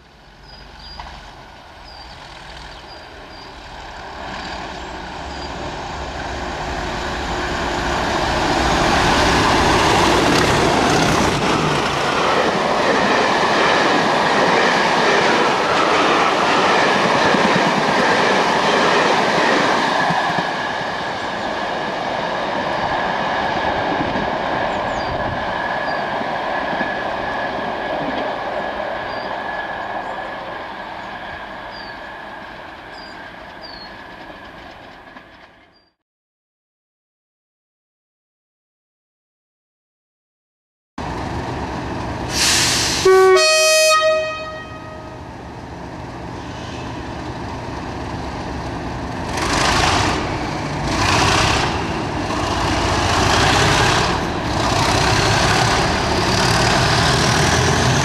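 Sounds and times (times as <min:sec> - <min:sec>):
diesel locomotive engines: 0:00.0 - 0:35.9, 0:41.0 - 0:58.0
coaches rolling on track: 0:45.5 - 0:58.0.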